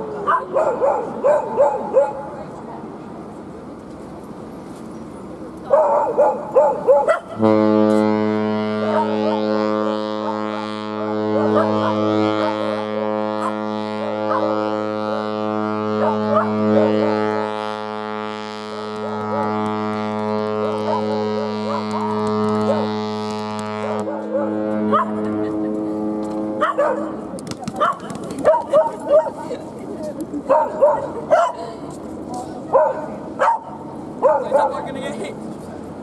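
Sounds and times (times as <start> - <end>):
dog barking and yelping: 0.2 - 2.3, 5.7 - 7.4, 11.4 - 12.6, 14.3 - 14.5, 16.0 - 16.9, 20.8 - 22.8, 24.1 - 25.2, 26.6 - 27.2, 27.8 - 29.5, 30.5 - 31.6, 32.7 - 34.8
ship horn long blast: 7.3 - 27.3.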